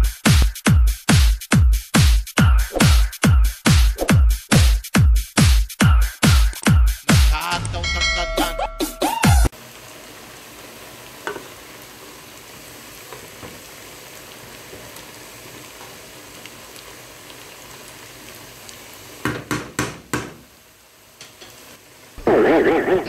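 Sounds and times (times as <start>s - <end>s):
food sizzling in a pan: 9.1s - 23.0s
wooden spoon knocking on pan: 11.2s - 11.5s, 19.2s - 20.4s.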